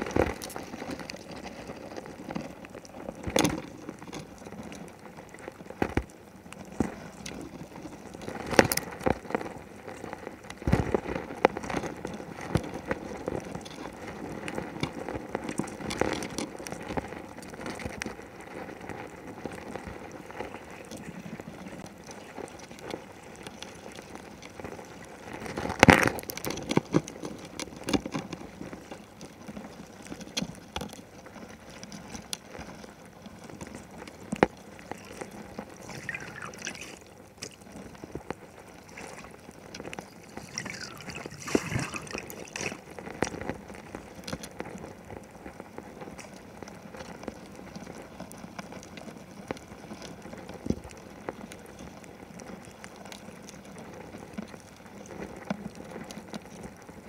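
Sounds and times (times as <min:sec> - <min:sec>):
underwater water noise: 0:00.0 - 0:57.0
rush of water: 0:34.8 - 0:38.0, 0:38.6 - 0:43.3
short gurgles: 0:35.8 - 0:37.0, 0:40.1 - 0:42.8.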